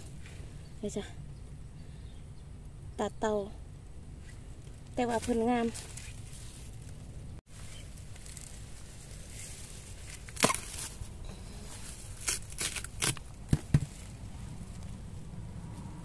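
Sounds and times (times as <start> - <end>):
knife chopping bamboo shoot: 10.3 - 10.8, 12.2 - 14.0.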